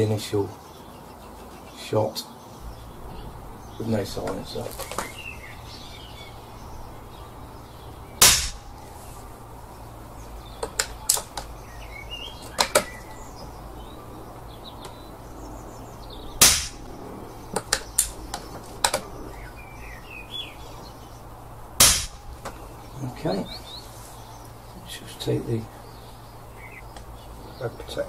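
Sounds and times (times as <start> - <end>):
air rifle firing: 8.2 - 8.8, 16.4 - 16.9, 21.8 - 22.4.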